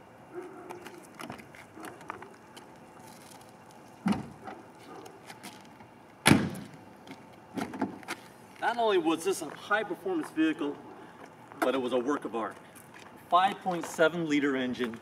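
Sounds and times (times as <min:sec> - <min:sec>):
car door shutting with thump: 0:04.0 - 0:04.4, 0:06.2 - 0:06.7
car door clunk: 0:04.0 - 0:04.6, 0:06.2 - 0:06.7.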